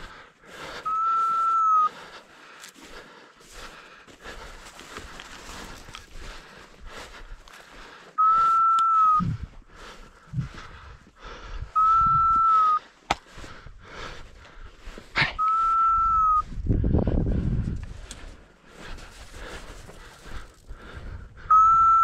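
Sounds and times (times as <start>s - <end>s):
footsteps crunching in snow: 1.2s - 8.6s, 17.6s - 21.0s
dog whistle blasts: 21.5s - 22.0s.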